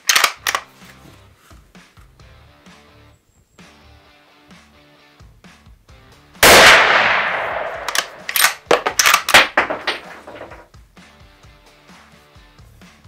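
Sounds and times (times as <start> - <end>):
rifle bolt clacking: 0.0 - 0.7, 6.5 - 10.6
rifle shot: 6.4 - 10.6.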